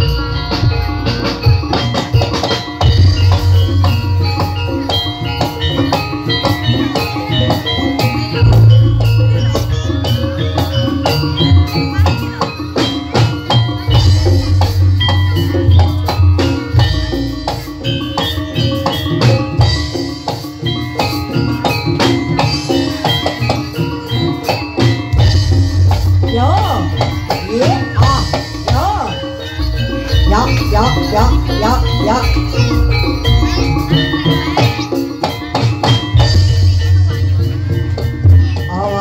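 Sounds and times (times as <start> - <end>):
fast driving drums: 0.0 - 39.0
ringing metal percussion: 0.0 - 39.0
heavy low bass notes: 8.4 - 10.6.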